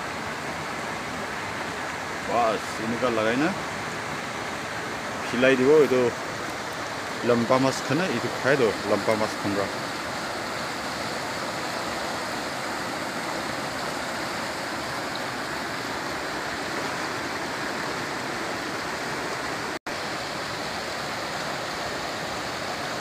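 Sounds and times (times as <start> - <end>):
river rapids rushing over rocks: 0.0 - 23.0.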